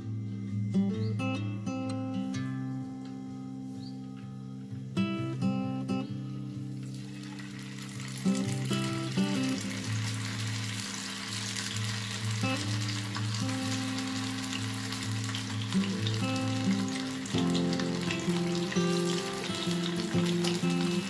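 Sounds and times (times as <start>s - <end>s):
fish sizzling in hot oil: 6.8s - 21.0s.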